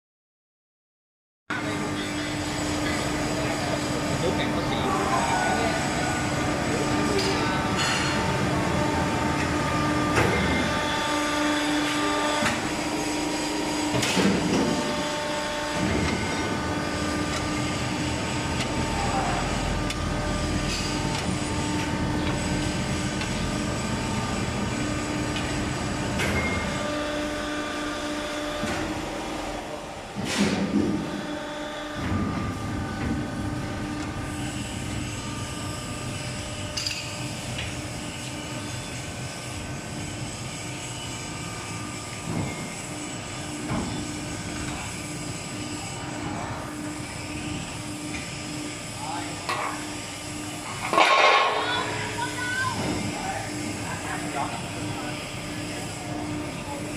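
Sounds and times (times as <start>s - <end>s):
machine mechanical drone: 1.5s - 56.9s.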